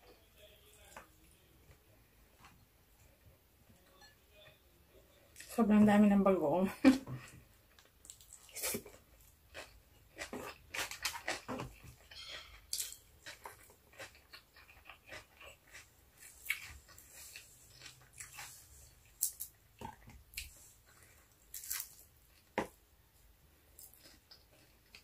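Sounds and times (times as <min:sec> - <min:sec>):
mouth chewing and smacking: 0:07.7 - 0:22.5.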